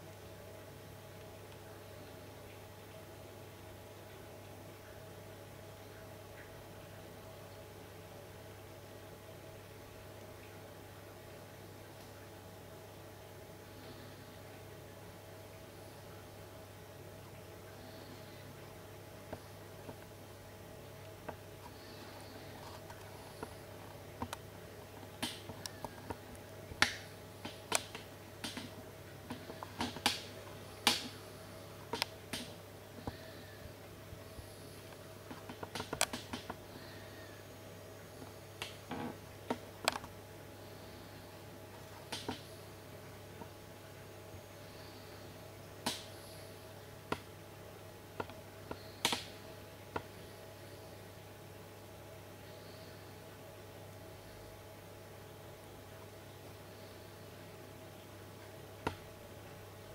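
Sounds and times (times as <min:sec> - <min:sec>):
steady low hum: 0:00.0 - 0:59.9.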